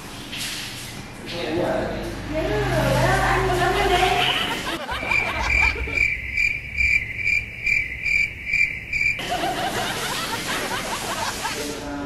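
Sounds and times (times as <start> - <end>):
cricket chirping: 4.8 - 9.2.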